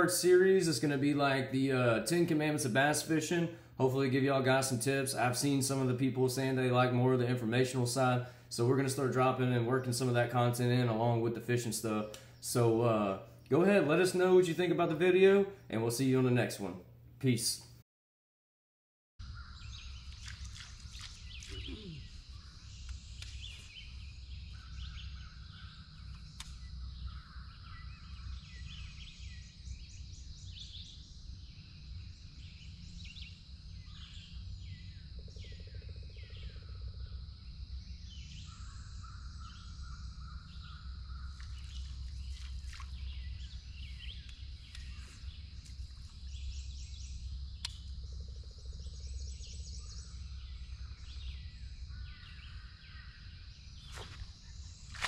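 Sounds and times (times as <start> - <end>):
birds chirping and calling: 19.2 - 36.8, 37.8 - 55.0
high insect drone: 19.7 - 55.0
low rumble: 20.8 - 55.0.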